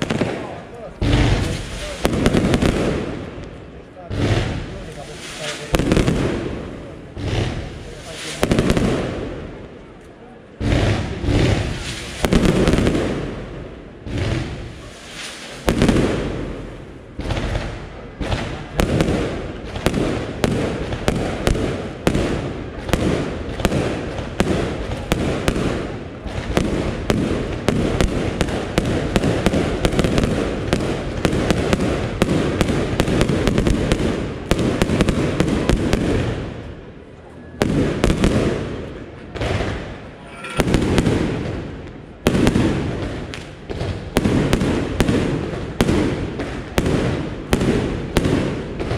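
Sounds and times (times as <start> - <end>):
firework shells bursting: 0.0 - 13.4
firework crackle: 0.0 - 48.9.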